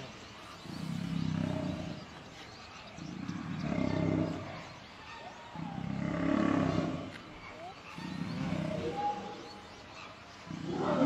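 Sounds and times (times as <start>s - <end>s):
lions growling: 0.6s - 2.2s, 3.0s - 4.7s, 5.5s - 9.7s, 10.4s - 11.0s.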